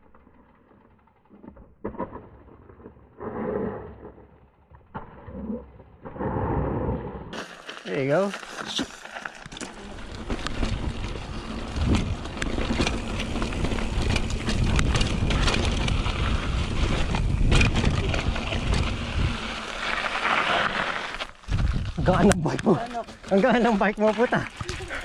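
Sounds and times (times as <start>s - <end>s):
bike knocks and clacks: 8.3s - 19.3s, 21.4s - 25.0s
wind buffeting microphone: 10.2s - 19.6s.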